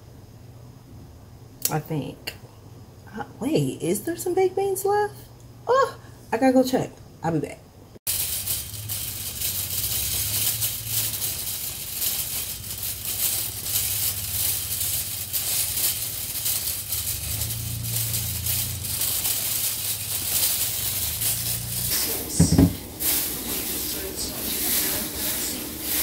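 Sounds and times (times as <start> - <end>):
wire shopping cart rattling: 8.1 - 26.0.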